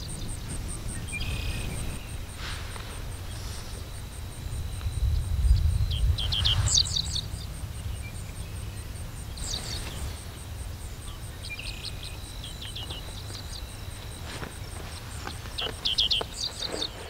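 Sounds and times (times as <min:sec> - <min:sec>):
birds chirping: 0:00.0 - 0:17.0
thin insect tone: 0:00.0 - 0:17.0.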